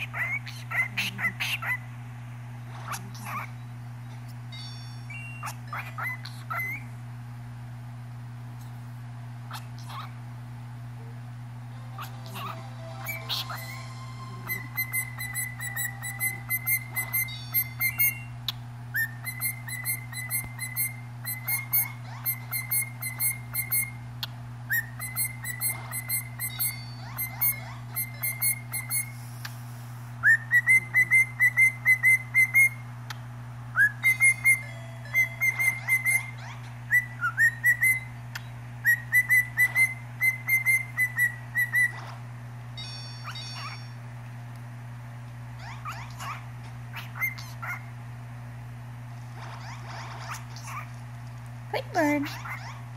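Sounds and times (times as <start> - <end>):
cockatiel whistling: 12.0 - 24.0, 24.7 - 29.2, 30.2 - 32.8, 33.7 - 42.0, 45.8 - 47.8.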